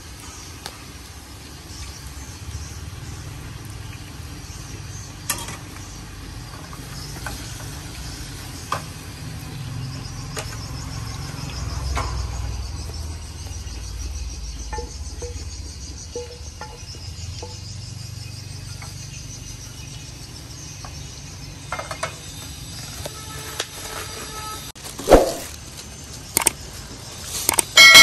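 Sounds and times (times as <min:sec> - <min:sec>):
sauce sizzling in pan: 0:00.0 - 0:11.6
metal spoon clinking on pan: 0:27.8 - 0:28.0.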